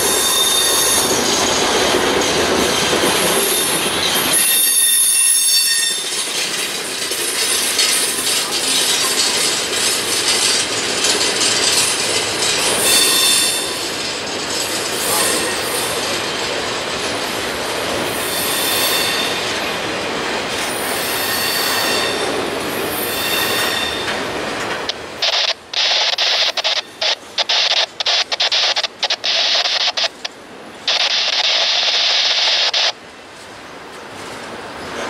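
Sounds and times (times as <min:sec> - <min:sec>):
freight train wheels rolling on rails: 0:00.0 - 0:35.0
thin high wheel squeal: 0:00.1 - 0:06.5, 0:12.7 - 0:13.8, 0:21.0 - 0:22.2, 0:22.9 - 0:24.1
harsh hissing squeal: 0:25.2 - 0:30.3, 0:30.9 - 0:32.9.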